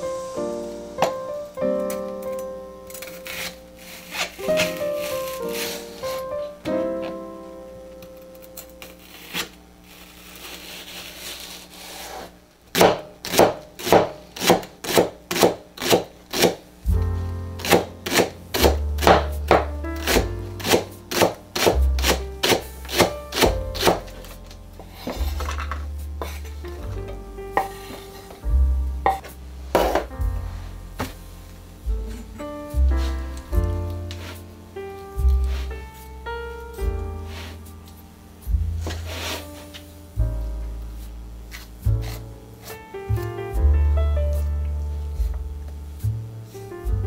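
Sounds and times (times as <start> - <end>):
knife chopping on cutting board: 3.0 - 5.8, 12.1 - 16.6, 17.6 - 24.3, 29.1 - 30.2, 41.5 - 42.2
background music with bass line: 16.8 - 47.0.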